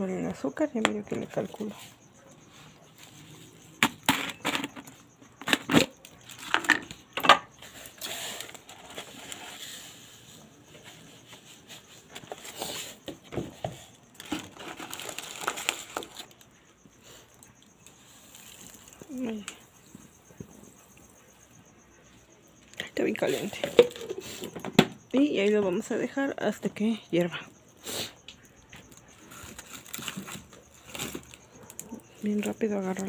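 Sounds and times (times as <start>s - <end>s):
plastic container and plate clinking: 23.4s - 24.9s.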